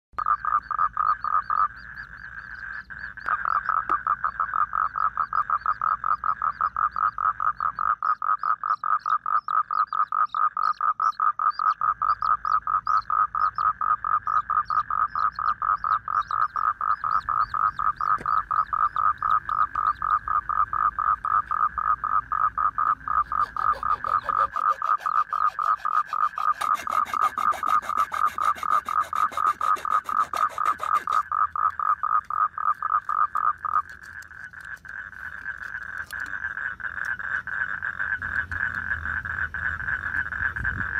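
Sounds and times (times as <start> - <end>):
frog croaking: 0.2 - 40.9
faint high peeps: 23.2 - 31.2.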